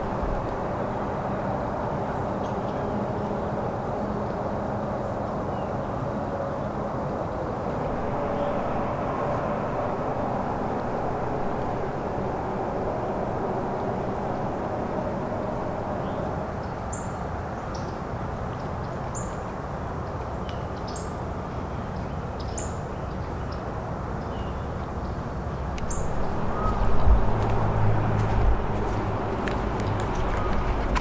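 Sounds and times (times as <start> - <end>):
low background rumble: 7.5 - 16.9, 25.4 - 31.0.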